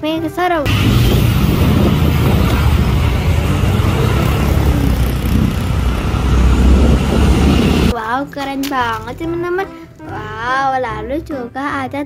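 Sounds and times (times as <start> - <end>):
street traffic noise: 0.7 - 7.9
truck diesel engine running: 0.7 - 7.9.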